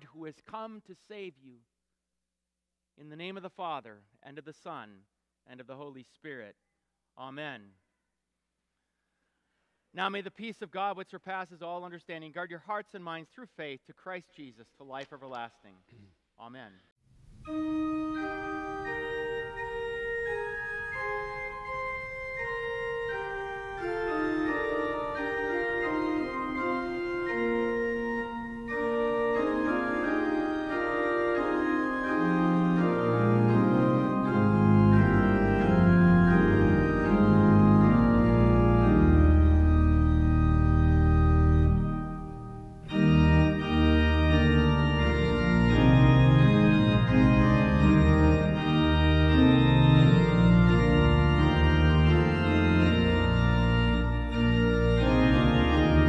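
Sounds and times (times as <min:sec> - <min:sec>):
organ playing held chords: 0:17.3 - 0:56.0.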